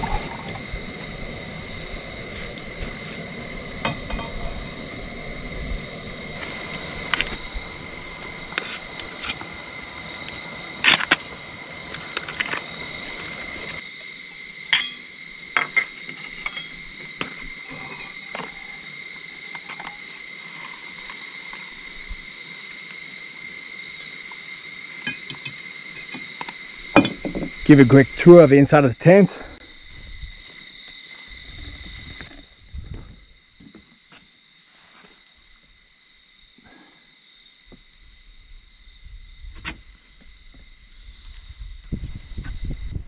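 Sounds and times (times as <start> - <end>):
crickets trilling: 0.0 - 43.0
metal cups clinking on wood: 27.0 - 27.5.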